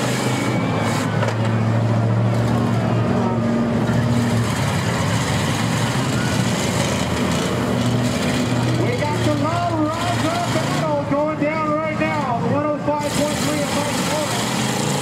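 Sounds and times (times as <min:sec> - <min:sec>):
car engines droning: 0:00.0 - 0:15.0.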